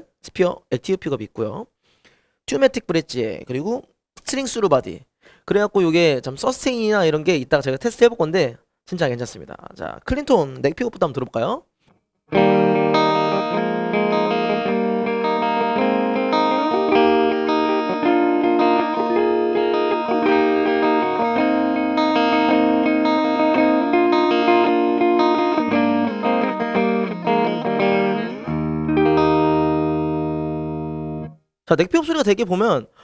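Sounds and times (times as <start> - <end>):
clean electric guitar chords: 12.3 - 31.4.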